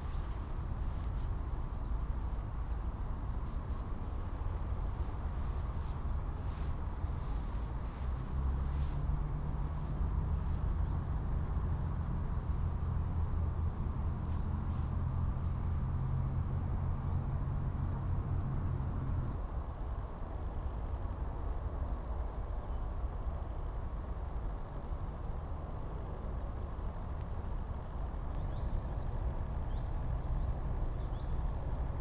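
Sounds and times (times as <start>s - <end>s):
small bird chirping: 0.0s - 4.4s, 5.5s - 8.5s, 9.6s - 13.2s, 14.3s - 19.4s, 28.4s - 32.0s
steady low rumble: 0.0s - 32.0s.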